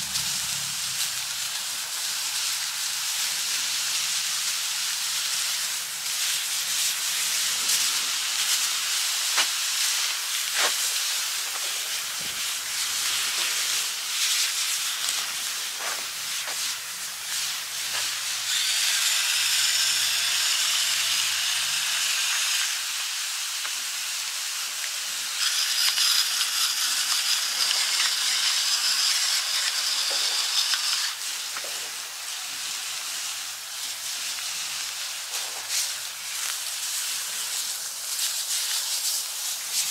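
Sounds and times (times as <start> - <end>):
steak sizzling in skillets: 0.0 - 39.9
pepper mill grinding: 24.9 - 32.2.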